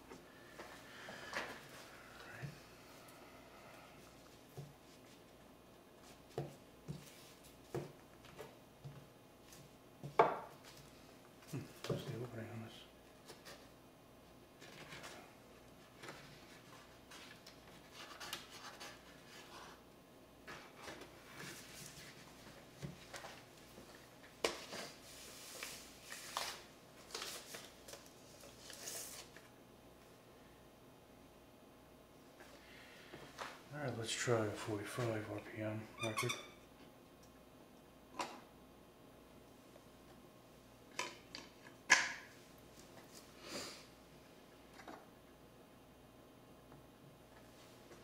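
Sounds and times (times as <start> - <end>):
paper sleeves rustling: 20.5 - 29.5.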